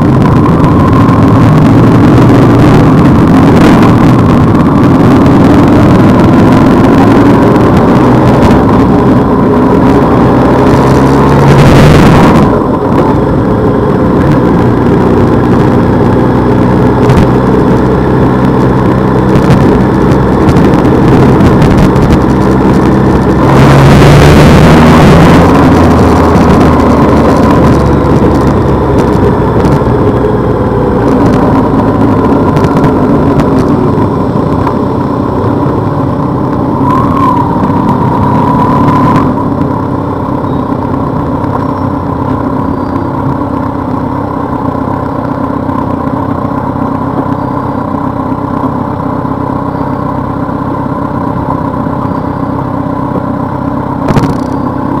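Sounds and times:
motorcycle engine running: 0.0 - 55.0
road and air noise: 0.0 - 55.0.

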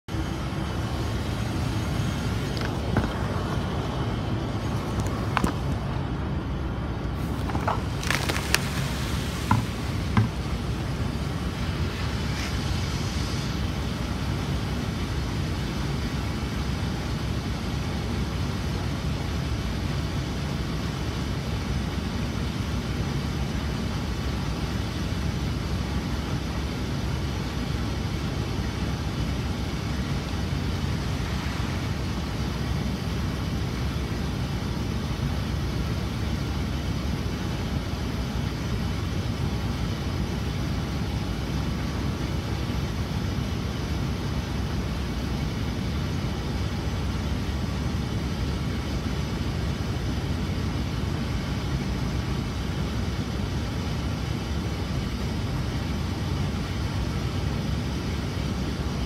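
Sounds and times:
steady low rumble: 0.0 - 59.0
hissing splash: 7.2 - 14.7.

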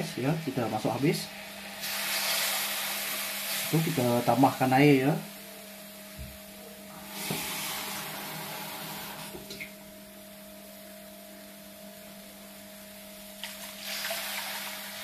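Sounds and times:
garlic sizzling in oil: 0.0 - 4.5, 13.2 - 15.0
water poured into hot oil: 1.3 - 4.1, 13.4 - 15.0.

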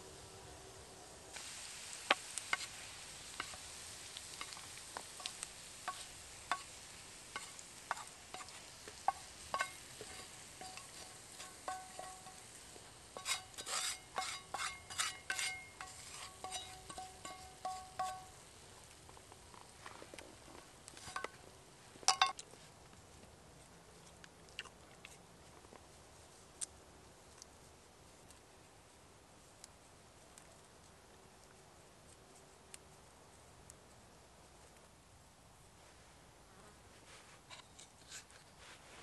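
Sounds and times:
food sizzling: 1.0 - 20.0, 20.6 - 22.4
spatula stirring in skillet: 1.3 - 21.4
spatula scraping pan: 2.4 - 18.4, 21.0 - 21.4.

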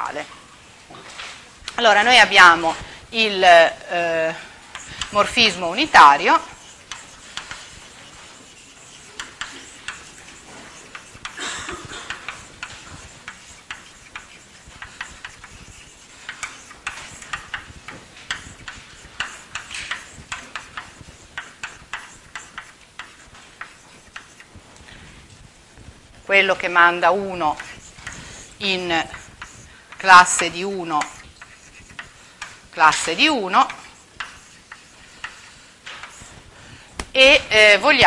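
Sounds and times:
chalk scratching on blackboard: 4.2 - 38.0
chalk tapping on blackboard: 4.7 - 24.6, 26.5 - 36.4.

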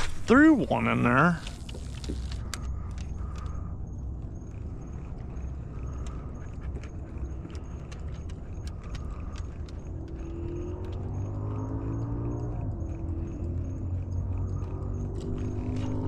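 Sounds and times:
dog collar tags jingling: 0.3 - 16.0
dog claws clicking on deck: 4.5 - 16.0.

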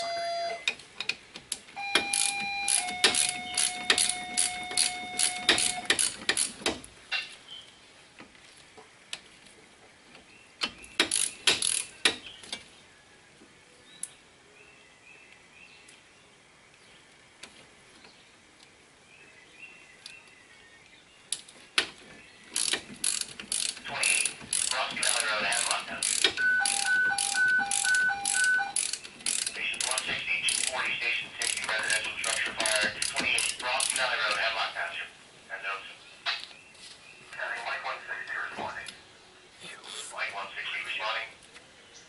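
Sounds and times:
socket ratchet wrench clicking: 2.0 - 6.7, 11.0 - 11.9, 22.6 - 30.7, 31.4 - 34.0.

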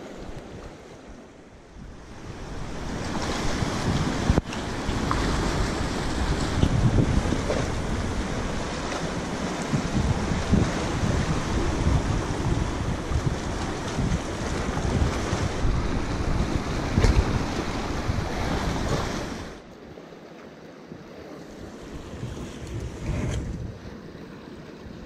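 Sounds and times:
sea surf washing against rocks: 0.0 - 25.0
wind buffeting microphone: 1.5 - 19.6, 21.6 - 25.0.

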